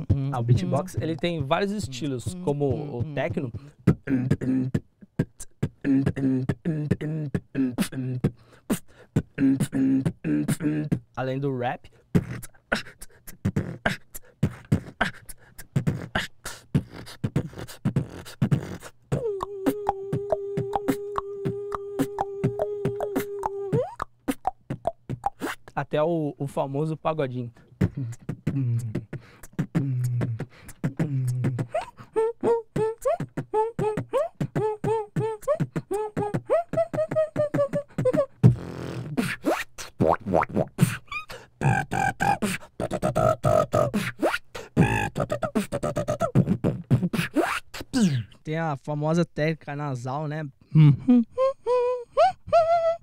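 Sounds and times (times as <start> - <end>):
person beatboxing: 0.0 - 25.9, 27.3 - 48.4.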